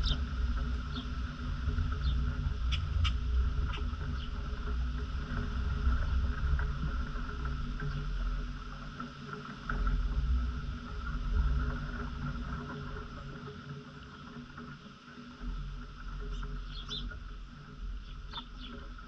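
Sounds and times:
wind buffeting microphone: 0.0s - 9.0s
faint outdoor hum: 0.0s - 19.0s.

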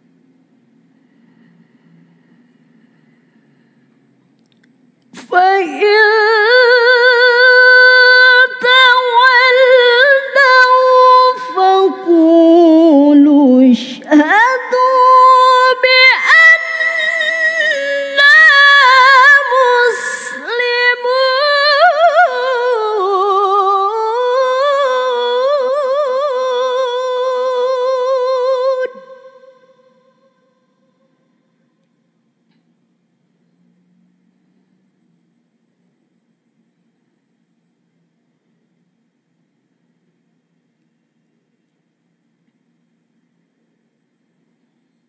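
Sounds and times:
short breaths: 1.0s - 4.2s
woman reciting melodically: 5.1s - 30.6s.

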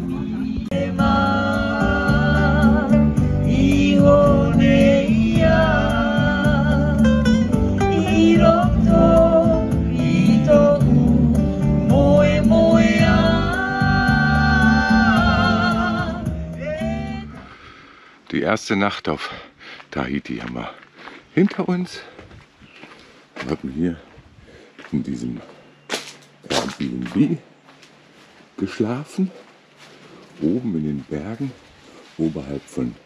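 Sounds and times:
bass beat: 0.0s - 17.4s
person singing: 0.0s - 17.6s
acoustic guitar: 0.0s - 17.7s
keyboard: 0.0s - 17.9s.

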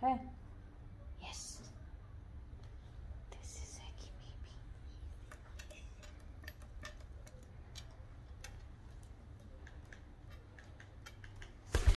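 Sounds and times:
parrot claws clicking on stone: 5.2s - 12.0s.

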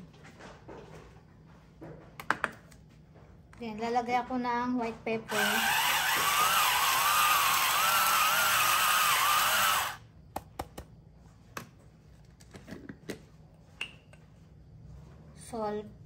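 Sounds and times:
electric pepper grinder whining: 5.3s - 10.0s.

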